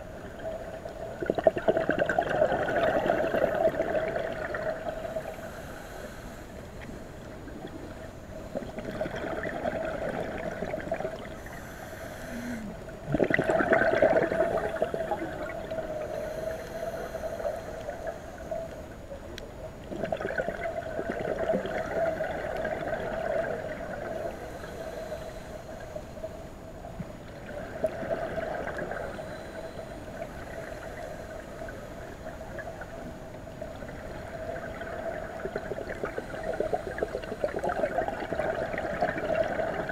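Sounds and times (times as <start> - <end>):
underwater hum: 0.0 - 39.9
regulator bubbles exhaled: 0.2 - 5.7, 7.4 - 11.6, 12.2 - 18.8, 19.8 - 25.9, 27.4 - 39.9.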